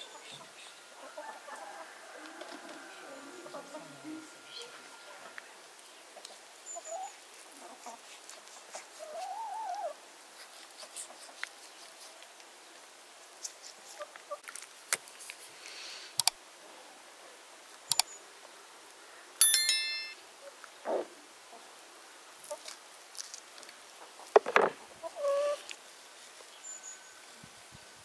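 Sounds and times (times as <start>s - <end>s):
short electronic chime: 19.4s - 20.2s.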